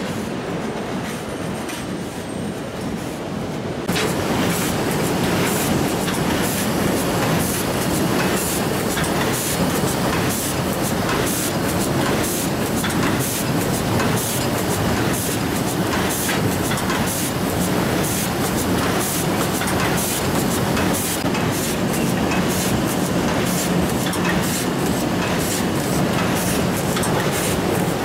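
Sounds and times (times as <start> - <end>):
machine clattering: 3.9 - 28.0.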